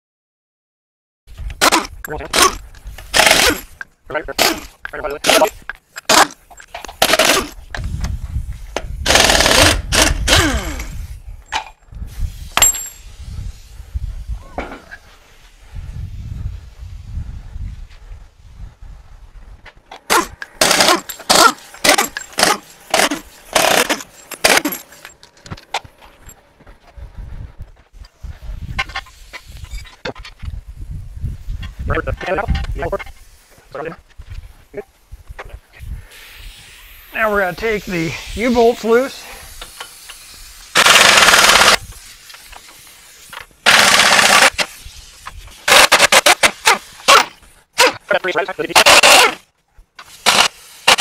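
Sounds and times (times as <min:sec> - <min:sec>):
pneumatic impact wrench hammering: 0:01.4 - 0:03.8, 0:04.4 - 0:13.1, 0:19.9 - 0:25.2, 0:39.5 - 0:48.1, 0:48.8 - 0:51.0
air tool bursts: 0:01.6 - 0:03.8, 0:04.4 - 0:08.2, 0:08.8 - 0:11.2, 0:12.0 - 0:13.8, 0:20.0 - 0:25.1, 0:36.0 - 0:48.0, 0:48.8 - 0:49.4, 0:50.0 - 0:51.0.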